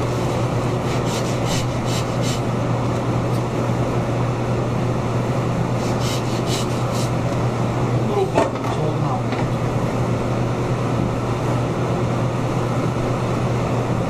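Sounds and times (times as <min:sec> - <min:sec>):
steady low hum: 0:00.0 - 0:14.0
hand saw rasping through bone: 0:00.8 - 0:02.5, 0:05.8 - 0:07.2.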